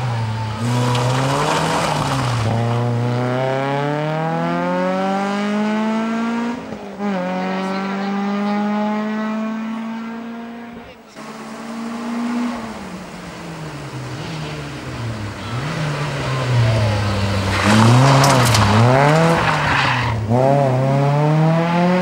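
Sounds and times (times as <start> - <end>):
rally car engine revving: 0.0 - 22.0
tyres scattering gravel: 0.5 - 2.8, 17.2 - 19.8.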